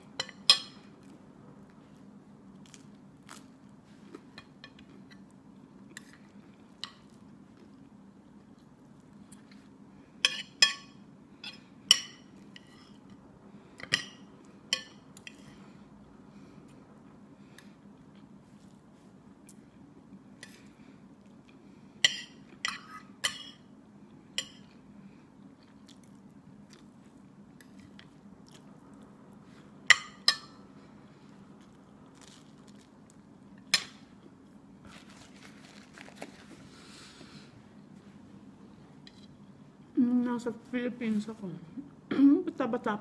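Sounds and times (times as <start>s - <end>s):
steady low hum: 0.0s - 43.0s
quiet chewing: 24.1s - 29.7s.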